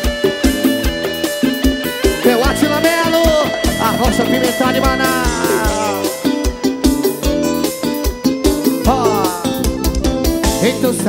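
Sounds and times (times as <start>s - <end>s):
melodic lead instrument: 0.0s - 11.0s
steady drum beat: 0.0s - 11.0s.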